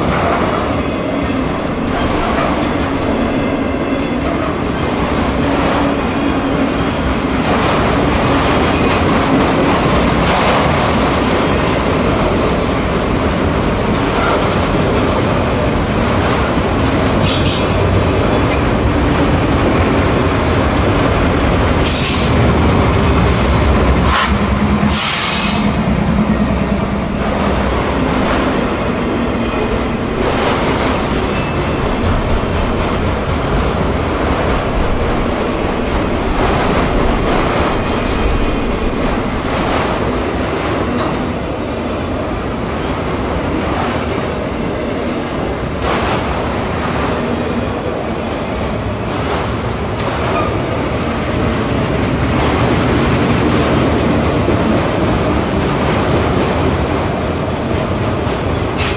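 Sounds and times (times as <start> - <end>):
freight train rolling by: 0.0 - 58.9.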